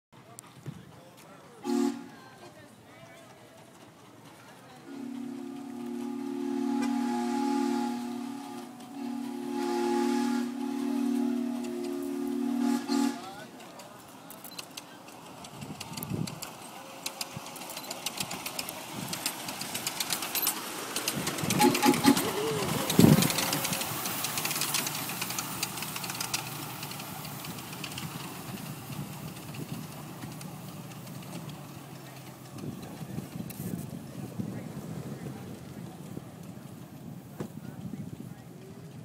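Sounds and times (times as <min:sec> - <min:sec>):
miniature train wheels clicking: 0:13.2 - 0:34.0.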